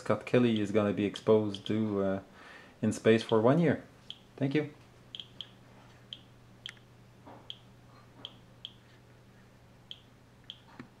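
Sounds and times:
faint steady hum: 0:00.0 - 0:11.0
geiger counter clicking: 0:05.1 - 0:06.8.

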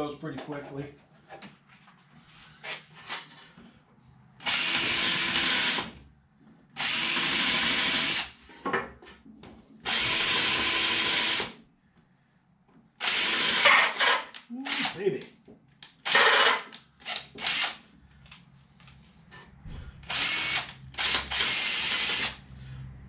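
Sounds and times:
cordless drill boring into wood: 0:04.4 - 0:05.9, 0:06.8 - 0:08.3, 0:09.9 - 0:11.6, 0:13.0 - 0:15.0, 0:16.0 - 0:17.8, 0:20.1 - 0:22.4.

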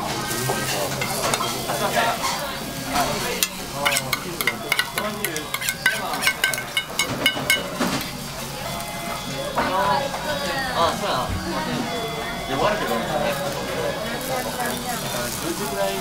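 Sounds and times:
batter sizzling on a griddle: 0:00.0 - 0:10.4, 0:12.5 - 0:16.0
faint restaurant chatter: 0:00.0 - 0:16.0
metal bowl and utensil clinking: 0:00.4 - 0:08.1.

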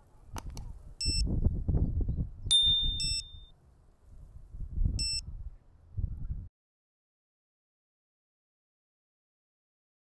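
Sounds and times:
high electronic beeps: 0:02.5 - 0:03.5
sharp click with high ring: 0:02.5 - 0:03.5.

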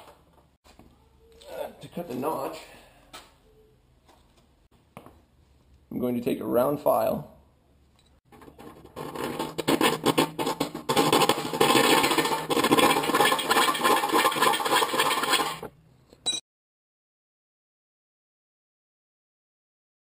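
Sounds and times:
file rasping on metal: 0:09.0 - 0:15.7.

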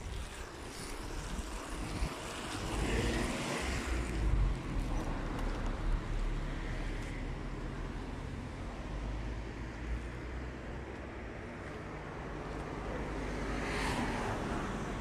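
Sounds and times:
wind buffeting microphone: 0:00.0 - 0:06.1
broad rush of noise: 0:00.0 - 0:15.0.

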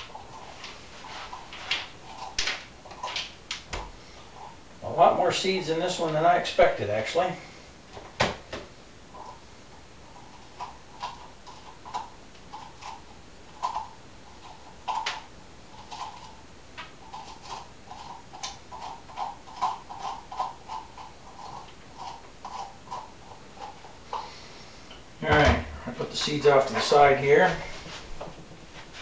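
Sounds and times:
spoon scraping squash: 0:15.7 - 0:16.4, 0:17.0 - 0:24.5.

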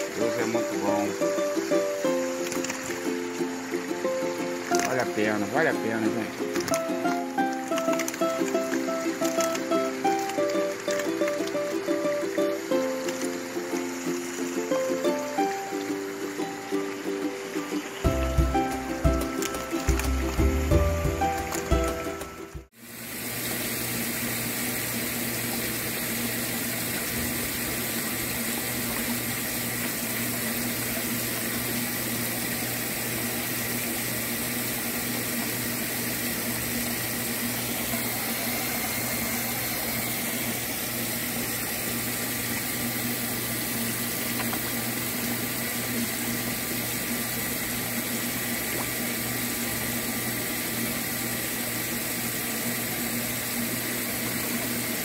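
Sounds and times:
water splashing and churning: 0:00.0 - 0:22.4.

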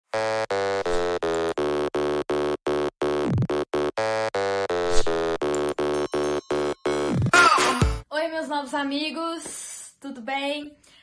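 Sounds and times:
pulsing buzzy synth note: 0:00.1 - 0:07.3.

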